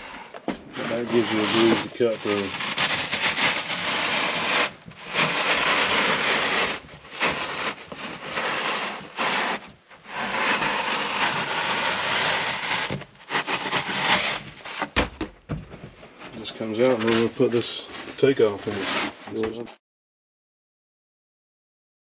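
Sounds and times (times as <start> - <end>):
knife sawing through ductboard: 0.0 - 15.0, 18.2 - 19.4.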